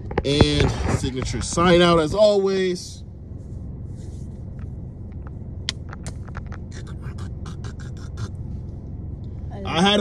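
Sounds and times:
car cabin rumble: 0:00.0 - 0:02.4, 0:03.2 - 0:10.0.

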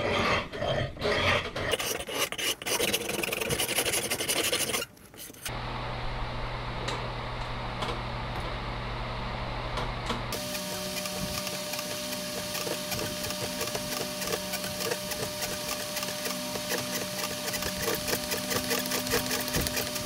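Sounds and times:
file rasping on wooden handle: 0:01.1 - 0:05.5, 0:10.4 - 0:20.0.

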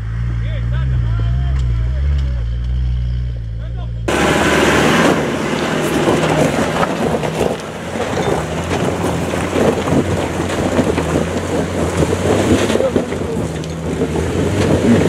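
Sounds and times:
engine running under load: 0:00.0 - 0:15.0
tyres crunching on stones: 0:04.1 - 0:15.0.

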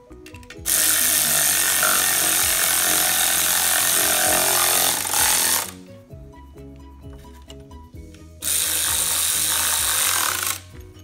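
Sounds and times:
power ratchet spinning nuts: 0:00.6 - 0:05.8, 0:08.4 - 0:10.8.

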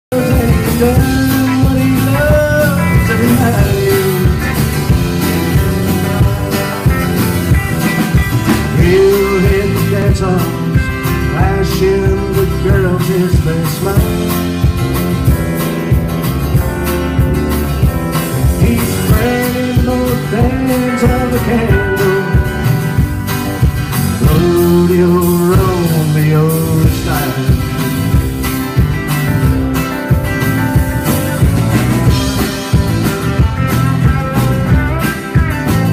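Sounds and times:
person singing lead vocal: 0:00.0 - 0:07.3, 0:08.6 - 0:14.6, 0:18.5 - 0:22.7, 0:24.0 - 0:28.0
electric and acoustic guitars: 0:00.0 - 0:35.9
drum kit beat: 0:00.1 - 0:35.9.

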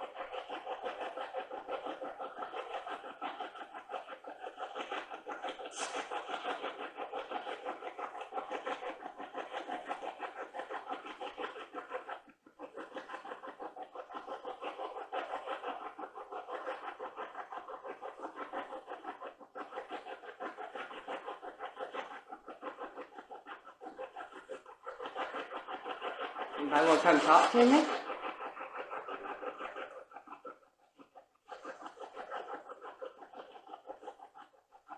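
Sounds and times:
radio static sweeping stations: 0:26.6 - 0:28.1.

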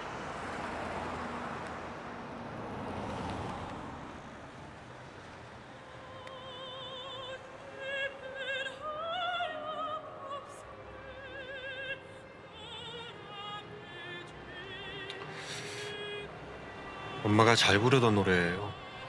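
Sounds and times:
soprano singing opera: 0:05.7 - 0:19.0.

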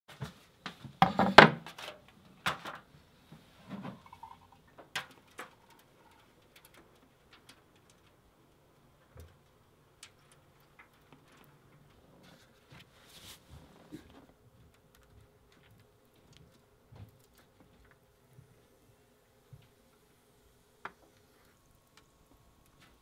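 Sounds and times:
knocks and rattles on wooden table: 0:01.0 - 0:01.6.

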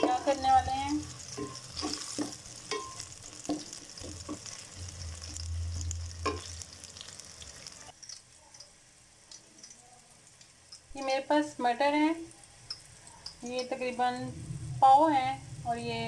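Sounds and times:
spatula scraping a pan: 0:00.0 - 0:07.8
onions sizzling in hot oil: 0:00.0 - 0:16.0.

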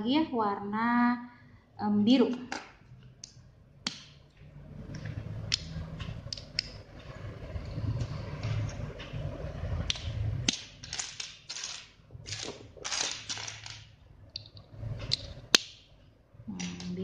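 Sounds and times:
plastic bricks clicking and rattling: 0:09.9 - 0:14.5.

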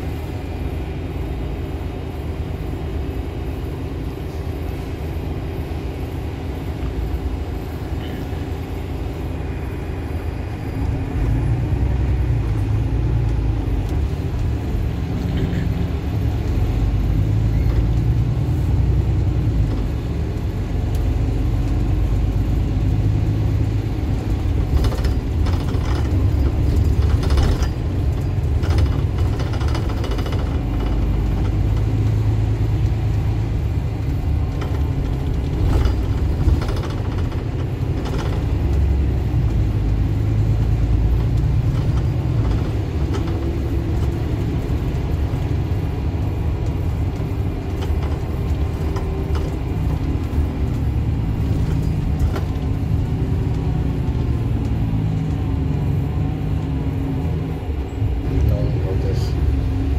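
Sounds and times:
bus diesel engine: 0:00.0 - 0:59.9
cabin rattles and clicks: 0:24.1 - 0:32.3, 0:34.0 - 0:53.8.

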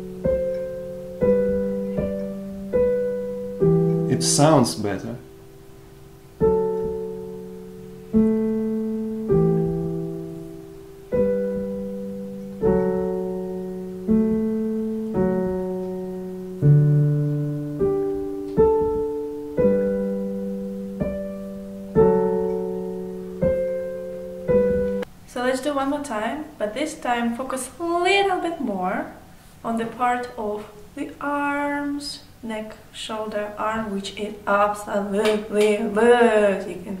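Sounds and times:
digital piano chords: 0:00.0 - 0:25.1.

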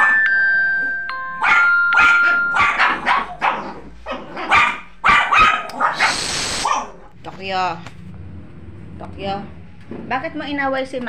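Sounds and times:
dogs barking rapidly: 0:01.4 - 0:07.1.

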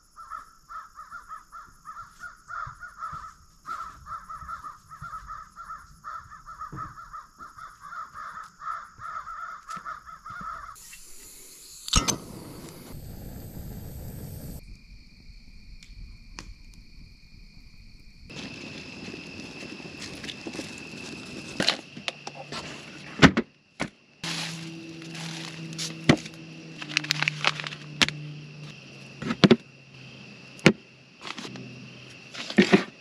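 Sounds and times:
birds calling: 0:00.2 - 0:11.3.

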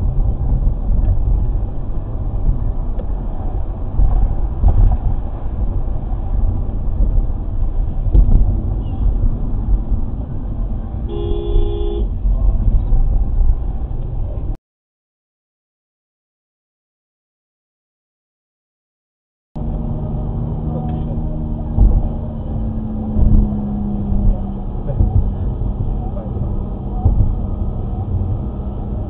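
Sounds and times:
car road and engine rumble: 0:00.0 - 0:14.6, 0:19.6 - 0:29.0
car horn: 0:11.1 - 0:12.2.

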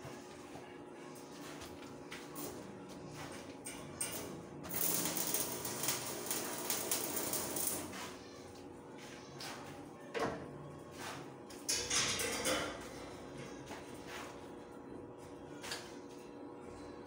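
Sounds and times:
welding arc crackling: 0:04.0 - 0:08.0.

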